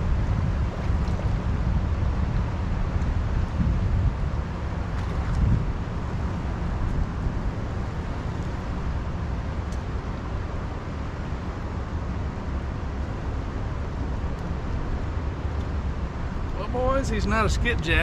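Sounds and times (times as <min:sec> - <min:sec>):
wind buffeting microphone: 0:00.0 - 0:09.5.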